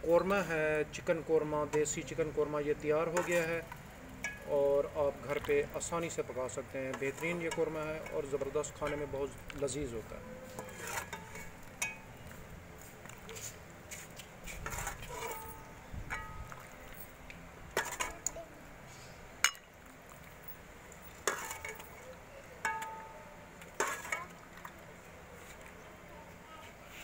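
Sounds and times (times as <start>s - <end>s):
metal ladle clinking on pot: 3.1s - 4.5s, 6.8s - 12.3s, 14.7s - 16.7s, 17.7s - 18.3s, 19.4s - 19.7s, 21.1s - 22.0s, 22.6s - 24.4s.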